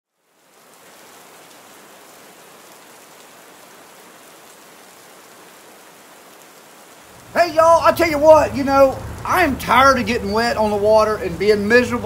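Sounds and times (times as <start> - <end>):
steady hiss: 2.8 - 12.0.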